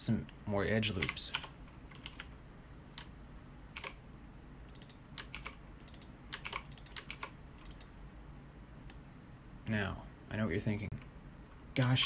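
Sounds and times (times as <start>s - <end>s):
keyboard keys clicking: 1.0s - 2.3s, 4.7s - 7.9s.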